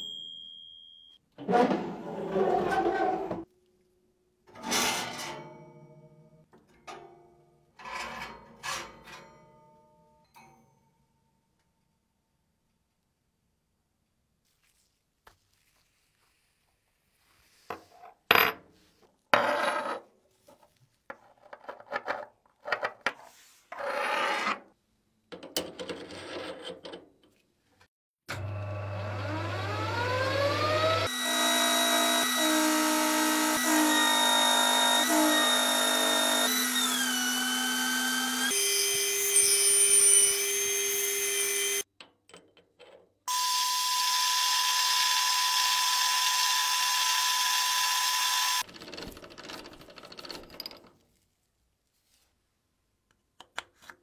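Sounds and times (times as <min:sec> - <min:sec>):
small power tool whining: 0:28.3 - 0:41.9, 0:43.3 - 0:48.7.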